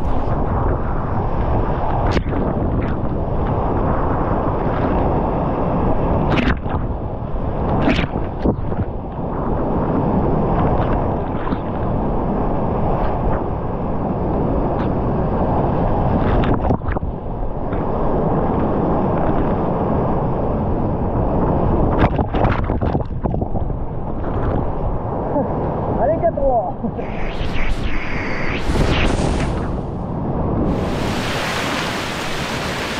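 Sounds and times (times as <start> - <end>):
whitewater rapids rushing: 30.7 - 32.9.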